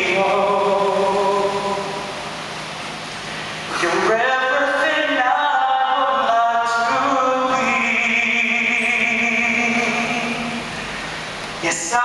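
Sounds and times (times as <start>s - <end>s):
man singing slow song: 0.0s - 2.1s, 3.7s - 10.7s, 11.6s - 12.0s.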